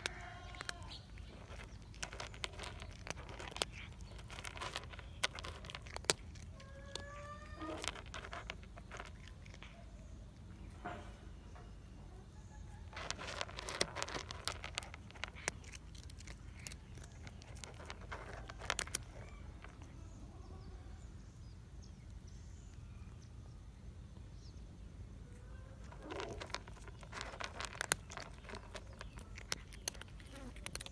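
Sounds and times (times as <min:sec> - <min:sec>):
cat crunching dry kibble: 0:00.0 - 0:10.8, 0:12.6 - 0:20.3, 0:25.3 - 0:30.9.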